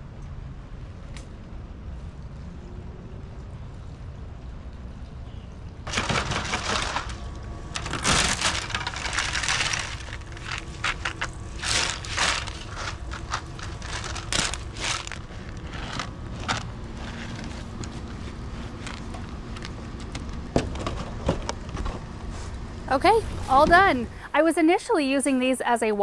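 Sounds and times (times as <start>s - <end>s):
hands spreading grain rattling: 5.9s - 19.7s.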